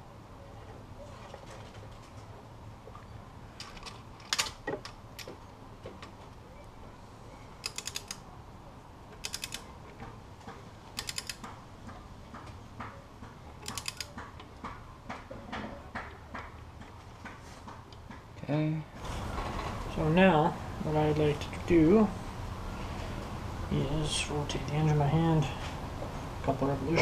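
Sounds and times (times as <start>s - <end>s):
torque wrench ratchet clicking: 7.6s - 8.2s, 9.2s - 9.6s, 11.0s - 11.4s, 13.6s - 14.1s.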